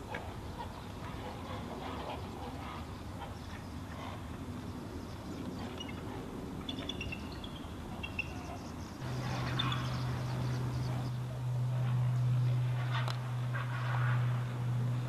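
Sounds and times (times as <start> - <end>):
steady low hum: 0.0 - 15.0
faint high bird chirps: 6.7 - 8.8.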